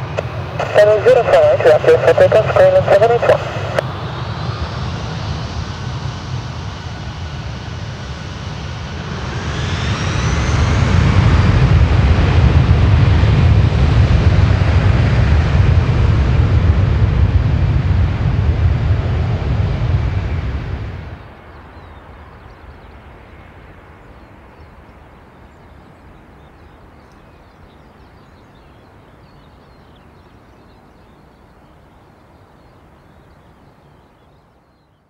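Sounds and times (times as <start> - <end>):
jet engines spooling up: 0.0 - 21.2.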